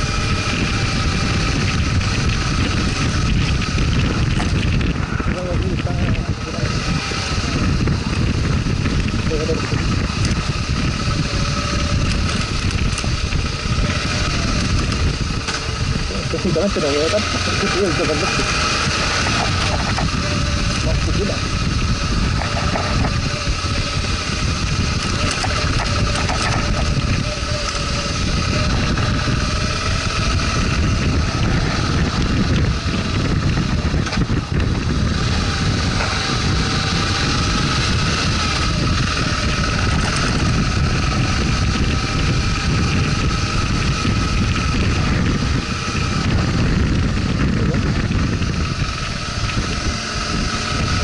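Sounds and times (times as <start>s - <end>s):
motorcycle engine running: 0.0s - 51.0s
wind noise on microphone: 0.0s - 51.0s.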